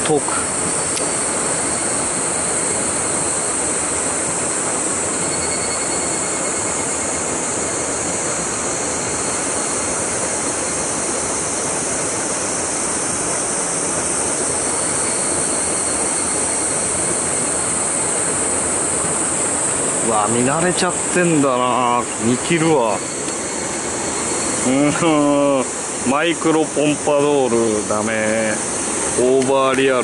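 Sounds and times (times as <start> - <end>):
high-pitched hiss: 0.0 - 30.0
stream water rushing into pool: 6.2 - 30.0.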